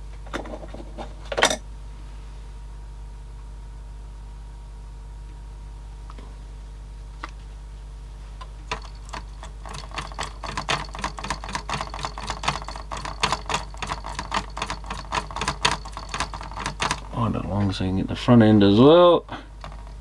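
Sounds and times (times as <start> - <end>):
cd player mechanism clicking and rattling: 8.7 - 17.1, 19.6 - 20.0.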